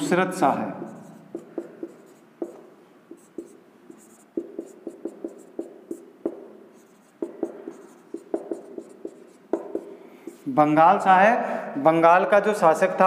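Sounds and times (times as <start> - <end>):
marker squeaking on whiteboard: 0.8 - 10.5.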